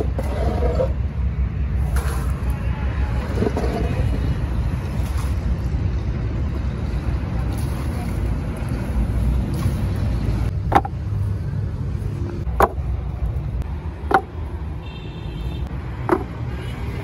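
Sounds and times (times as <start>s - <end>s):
metal molds knocking on stack: 10.7s - 11.0s, 14.1s - 14.3s, 16.1s - 16.4s.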